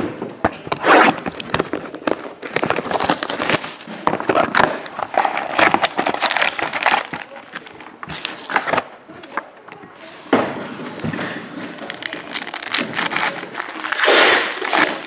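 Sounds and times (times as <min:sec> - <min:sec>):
foil wrappers crinkling and tearing: 0:01.3 - 0:08.9, 0:11.6 - 0:15.0.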